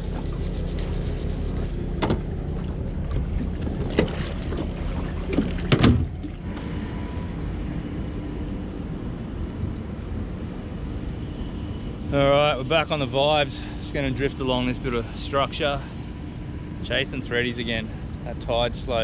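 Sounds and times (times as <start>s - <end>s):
water noise: 0.0s - 7.3s
boat motor drone: 0.0s - 19.0s.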